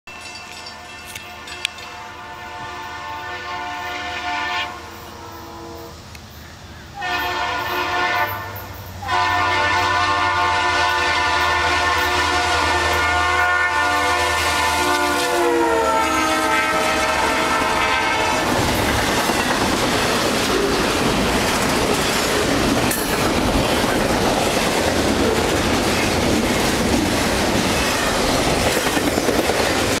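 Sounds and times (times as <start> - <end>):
train cars rumbling on rails: 0.1 - 30.0
locomotive air horn: 1.0 - 6.1, 7.0 - 18.7.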